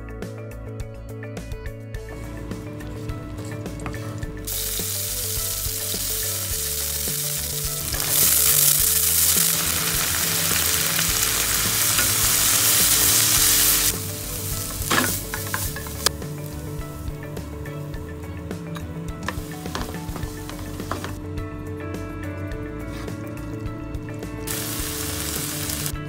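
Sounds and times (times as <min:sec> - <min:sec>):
food sizzling in frying pan: 0:02.7 - 0:17.0, 0:24.3 - 0:26.0.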